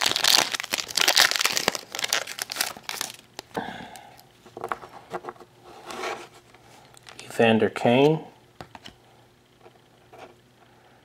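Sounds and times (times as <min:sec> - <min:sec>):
foil wrapper crinkling and tearing: 0:00.0 - 0:03.5.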